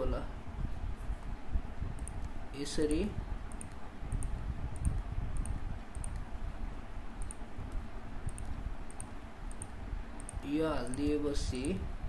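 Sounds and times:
low steady rumble: 0.0 - 12.0
computer mouse clicks: 2.0 - 2.4, 3.5 - 6.3, 7.2 - 11.8.

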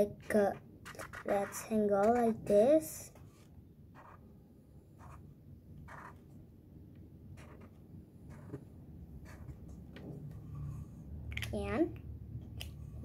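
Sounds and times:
pen scratching on paper: 0.0 - 2.5, 3.1 - 4.2, 5.0 - 6.3, 7.4 - 11.0.

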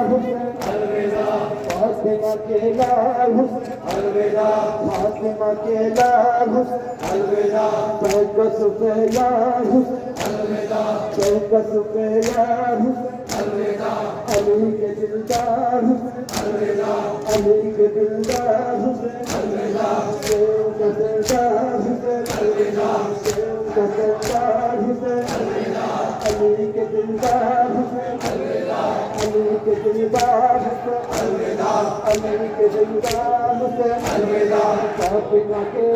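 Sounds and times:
men chanting in unison: 0.0 - 35.9
hands slapping chests: 1.6 - 1.9, 3.7 - 4.2, 8.0 - 8.3, 12.2 - 12.5, 13.3 - 13.6, 15.3 - 15.6, 16.3 - 16.6, 18.2 - 18.6, 19.2 - 20.5, 21.2 - 21.5, 22.2 - 23.5, 24.2 - 24.5, 25.2 - 26.5, 29.1 - 29.5, 30.1 - 30.4, 31.0 - 31.4, 32.0 - 32.4, 33.0 - 33.4, 34.0 - 35.2.

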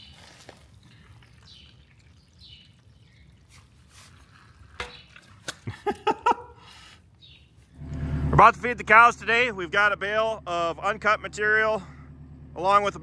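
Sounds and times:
water dripping and trickling: 0.0 - 6.1.

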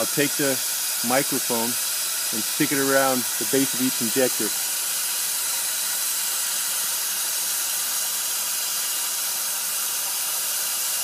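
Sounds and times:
compressed air hissing: 0.0 - 11.0.

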